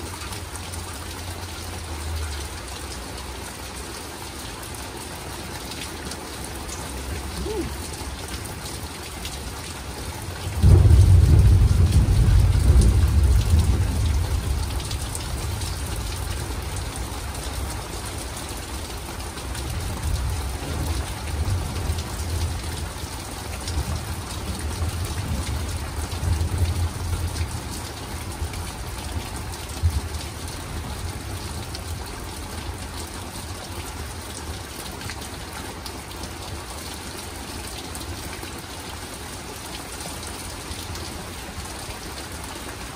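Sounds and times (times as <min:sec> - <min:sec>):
steady rain falling: 0:00.0 - 0:42.9
thunder rumbling: 0:10.5 - 0:16.9.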